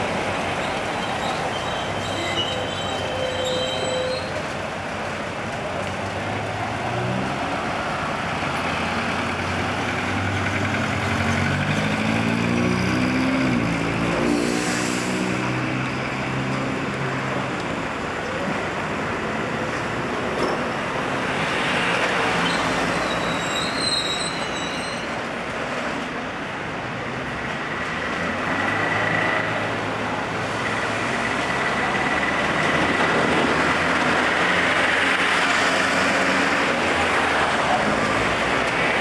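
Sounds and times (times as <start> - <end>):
street traffic: 0.0 - 39.0
tram wheels squealing: 0.1 - 4.6, 20.4 - 25.3.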